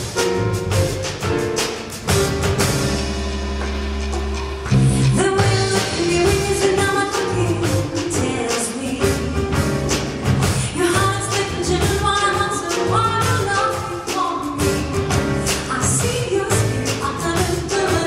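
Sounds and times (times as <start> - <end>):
drums keeping a steady beat: 0.0 - 18.0
jazz band playing: 0.0 - 18.0
woman singing: 5.0 - 18.0.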